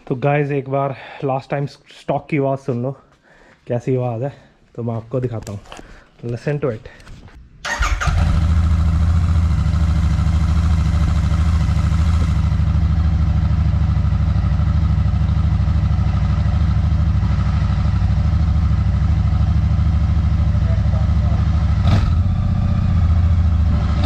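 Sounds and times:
motorcycle engine idling: 7.7 - 23.7.

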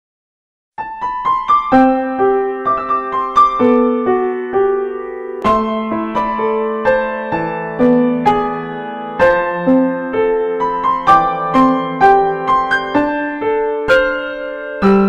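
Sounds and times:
slow piano melody: 0.8 - 15.0.

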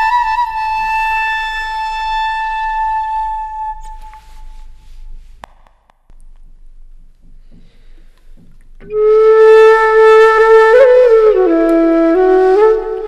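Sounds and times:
flute holding long note: 0.0 - 5.0, 8.8 - 13.0.

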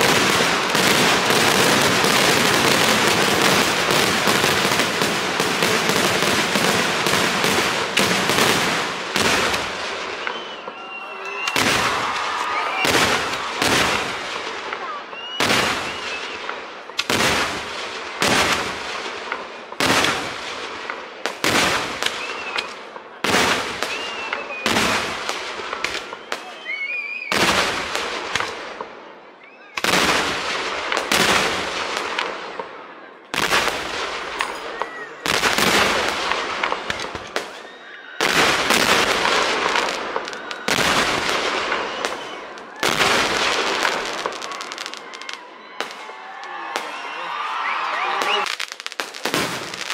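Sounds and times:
fireworks bangs with crackle: 0.0 - 49.9
firework whistles: 9.3 - 14.2, 15.1 - 17.1, 21.8 - 22.8, 23.6 - 27.8, 37.0 - 46.0, 46.7 - 49.9.

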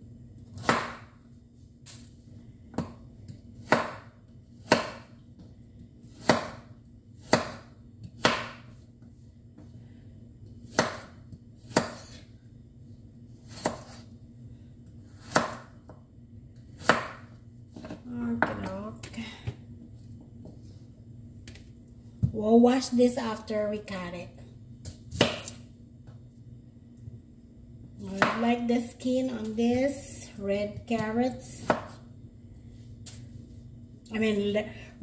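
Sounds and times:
knife chopping on wooden board: 0.6 - 1.1, 3.6 - 5.1, 6.1 - 8.7, 10.6 - 12.2, 13.5 - 14.0, 15.2 - 15.7, 16.8 - 18.6, 25.1 - 25.6, 28.2 - 28.4, 31.0 - 32.0.

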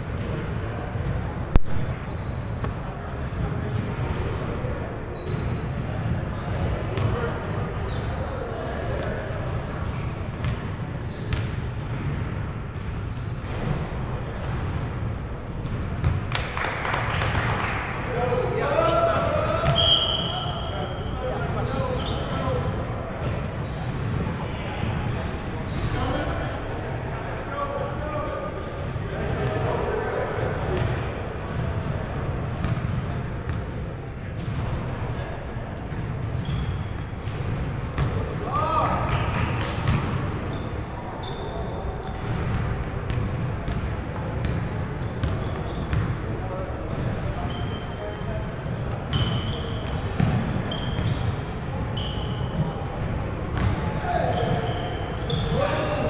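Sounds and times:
sneakers squeaking: 0.0 - 17.7, 18.3 - 27.0, 28.7 - 56.0
low hum of large hall: 0.0 - 56.0.

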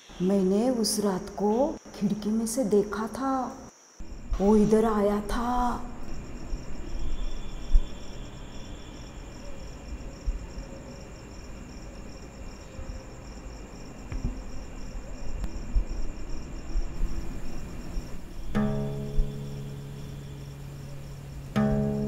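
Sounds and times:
crickets chirping: 0.0 - 22.0
low background rumble: 4.0 - 9.9, 14.2 - 22.0.

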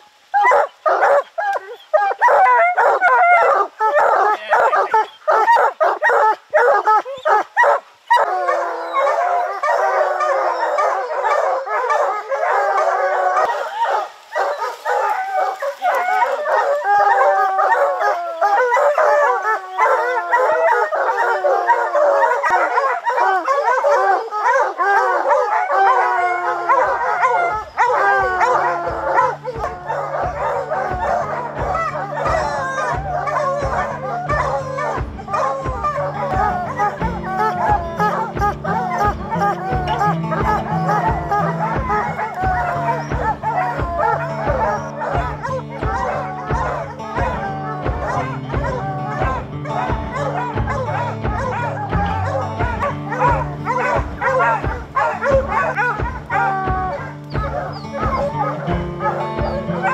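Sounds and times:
hounds baying: 0.0 - 59.9
music with a steady beat: 27.2 - 59.9.

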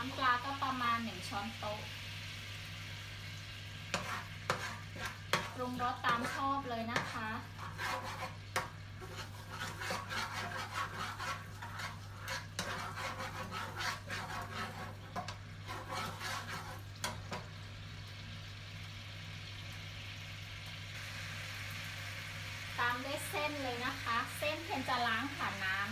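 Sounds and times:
sauce sizzling in a pan: 0.0 - 25.9
spatula scraping a wok: 3.7 - 17.6.

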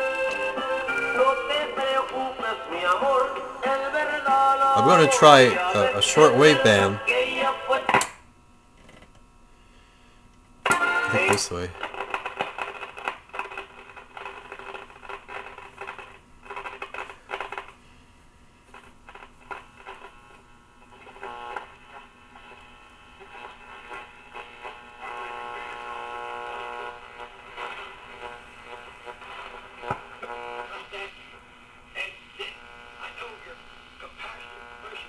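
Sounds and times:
shortwave radio broadcast voices: 0.6 - 7.9, 10.8 - 11.9, 21.1 - 35.0.

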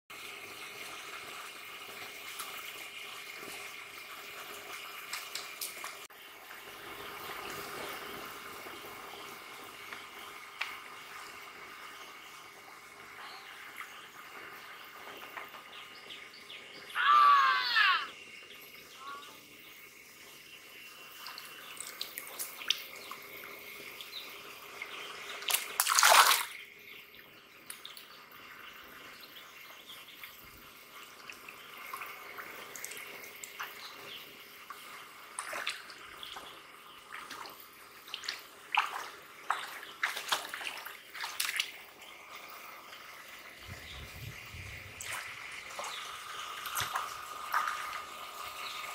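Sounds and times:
hands splashing in muddy water: 25.5 - 26.5
loud splash: 25.5 - 26.6.

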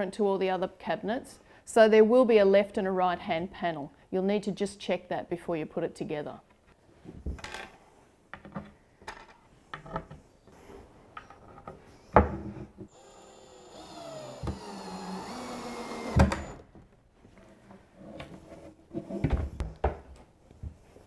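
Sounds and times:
cordless drill driving screw: 12.9 - 16.6.

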